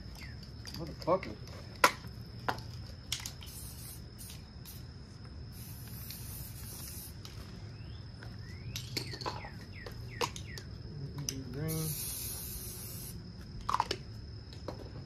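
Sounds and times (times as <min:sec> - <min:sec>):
high insect drone: 0:00.0 - 0:15.0
bird chirping: 0:00.1 - 0:00.7, 0:07.6 - 0:10.8
aerosol spray can hissing: 0:03.4 - 0:04.8, 0:05.5 - 0:07.2, 0:11.7 - 0:13.2.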